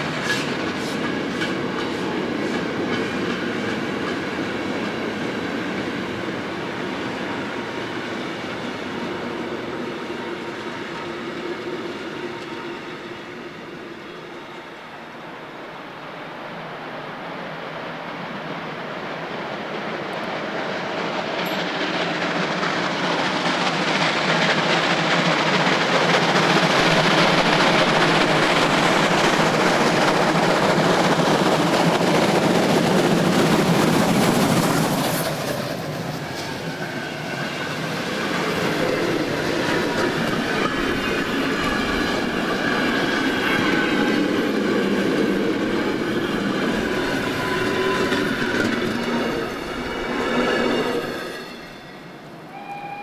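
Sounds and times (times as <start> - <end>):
steam locomotive exhaust: 0.0 - 4.4, 21.0 - 53.0.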